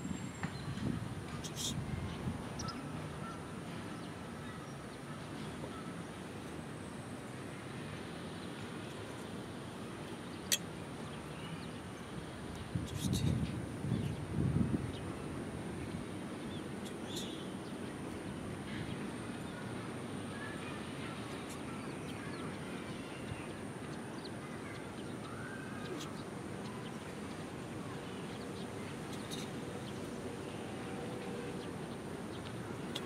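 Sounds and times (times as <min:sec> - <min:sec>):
faint bird chirps: 0:01.4 - 0:01.8, 0:16.6 - 0:17.5, 0:28.0 - 0:29.6.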